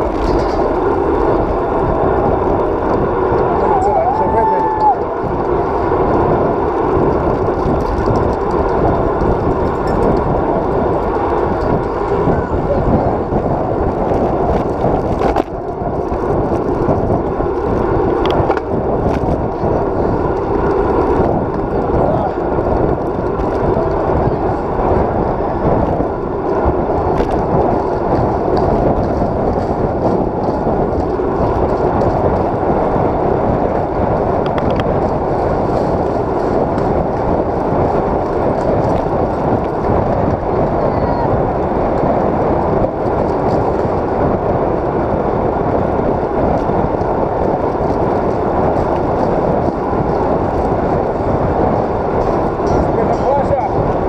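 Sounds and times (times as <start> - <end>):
bike knocks and rattles: 0.0 - 3.5, 13.1 - 40.8
bicycle road rumble: 0.0 - 54.0
wind buffeting microphone: 0.0 - 54.0.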